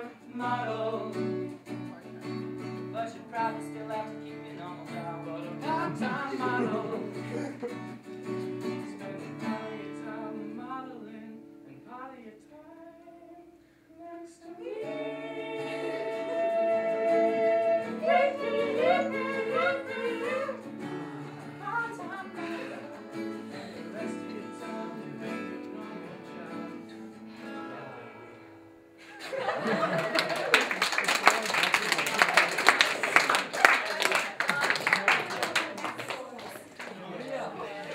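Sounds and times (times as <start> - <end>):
men singing in close harmony: 0.0 - 1.3, 5.0 - 7.4, 14.1 - 27.0
guitar accompaniment: 0.0 - 13.8, 14.4 - 30.5.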